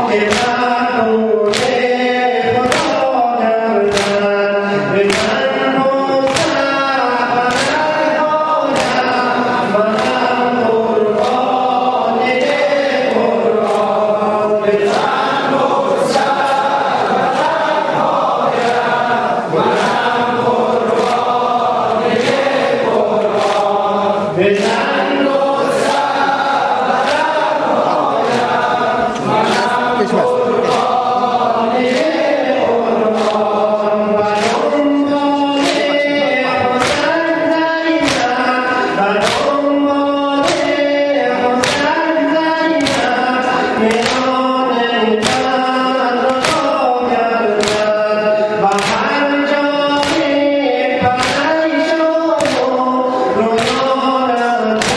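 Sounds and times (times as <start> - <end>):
men chanting in unison: 0.0 - 54.9
hands slapping chests: 0.2 - 0.6, 1.5 - 1.9, 2.6 - 3.1, 3.9 - 4.3, 5.1 - 5.5, 6.2 - 6.8, 7.4 - 8.0, 8.6 - 9.2, 9.8 - 10.4, 11.1 - 14.0, 19.7 - 23.9, 24.6 - 29.8, 30.6 - 37.2, 38.0 - 38.5, 39.2 - 39.6, 40.4 - 40.9, 41.6 - 42.0, 42.7 - 43.3, 43.9 - 44.4, 45.2 - 46.8, 47.6 - 48.0, 48.7 - 49.2, 50.0 - 50.4, 51.0 - 52.8, 53.5 - 54.9.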